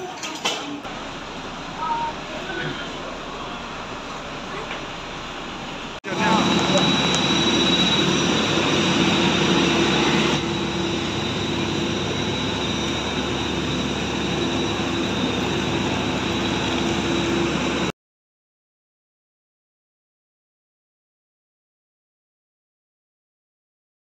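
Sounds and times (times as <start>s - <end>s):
jet aircraft engine whine: 0.9s - 17.9s.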